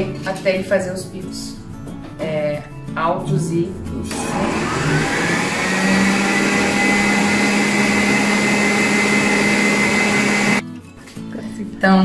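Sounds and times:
stand mixer motor humming: 4.1s - 10.6s.

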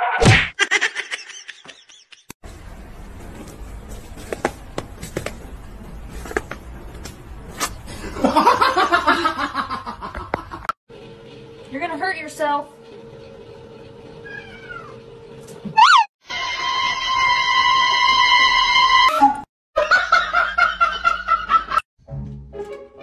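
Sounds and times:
person laughing: 0.6s - 2.3s.

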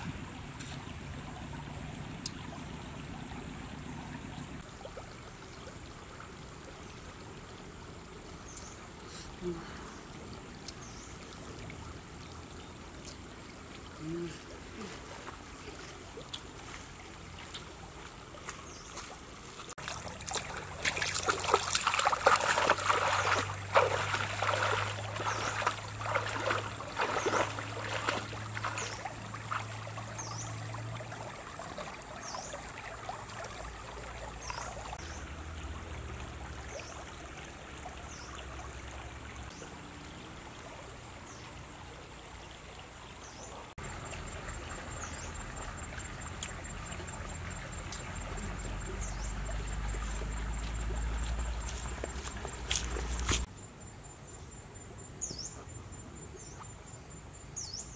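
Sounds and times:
running water: 0.0s - 53.5s
feet splashing through water: 12.9s - 39.6s, 43.8s - 53.5s.

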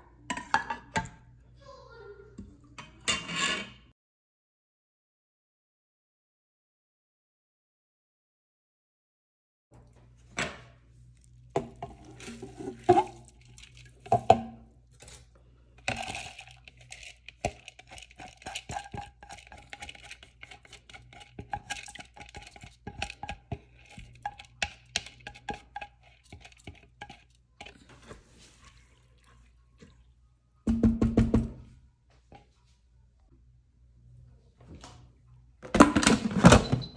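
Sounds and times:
dishes clattering: 0.2s - 1.3s, 2.8s - 3.8s
utensils clinking on dishes and pans: 2.8s - 3.9s
low steady hum: 9.8s - 36.9s.

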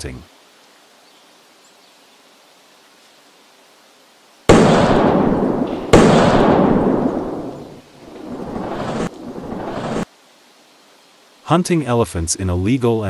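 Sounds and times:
loud gunshots: 4.5s - 10.0s.

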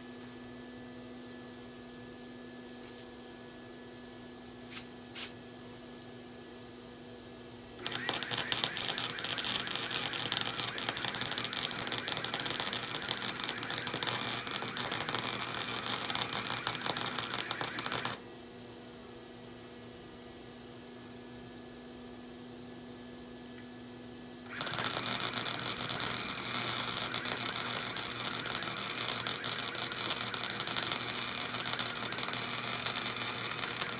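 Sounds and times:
welding arc crackling: 7.8s - 18.2s, 24.5s - 33.9s.

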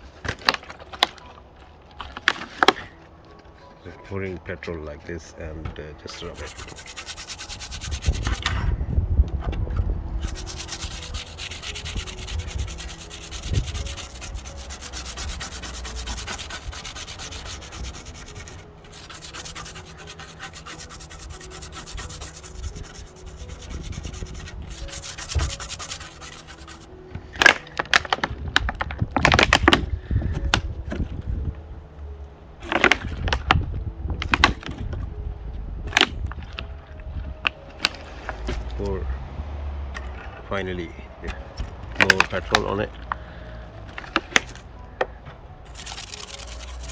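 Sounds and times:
toothbrush scrubbing circuit board: 6.2s - 8.4s, 10.2s - 26.9s, 45.7s - 46.9s.

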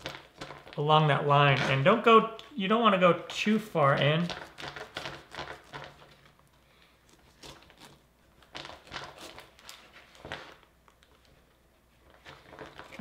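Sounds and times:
knife crunching through husk: 7.0s - 8.0s.

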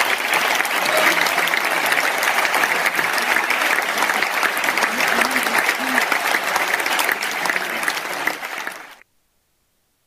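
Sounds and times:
large crowd applauding: 0.0s - 9.0s.

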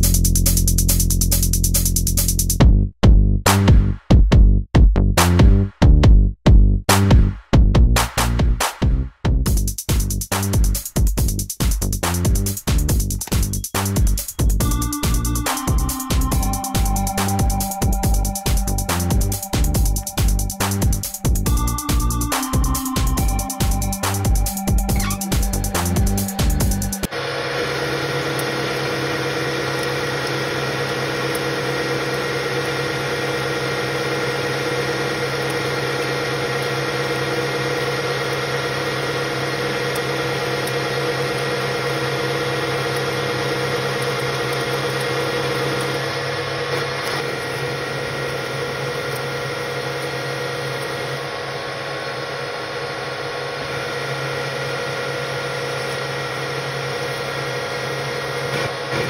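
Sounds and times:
lathe gearing whine: 13.3s - 59.0s.

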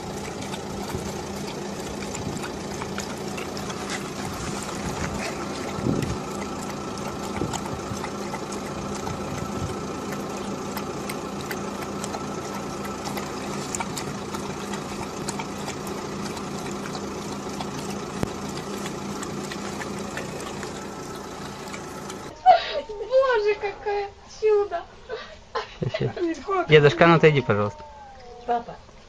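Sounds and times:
animal lapping water: 0.0s - 22.3s
steady mechanical hum: 0.0s - 23.5s.

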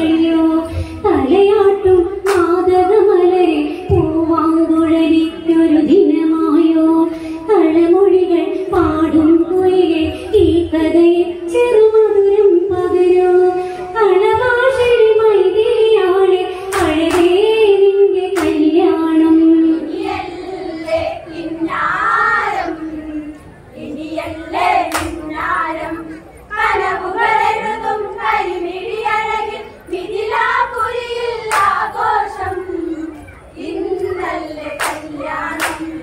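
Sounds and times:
women singing folk song: 0.0s - 36.0s
hand claps: 2.2s - 2.6s, 16.7s - 17.4s, 18.4s - 18.7s, 24.9s - 25.2s, 31.5s - 31.8s, 34.8s - 36.0s.

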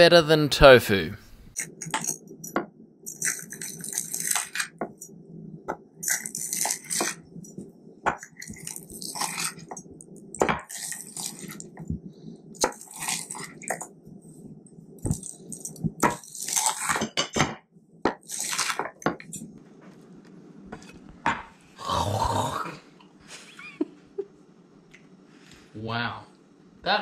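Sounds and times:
knife crunching fried crust: 3.1s - 4.8s, 6.0s - 7.2s, 8.5s - 9.6s, 10.7s - 11.7s, 12.6s - 13.7s, 16.1s - 17.0s, 18.2s - 18.8s.

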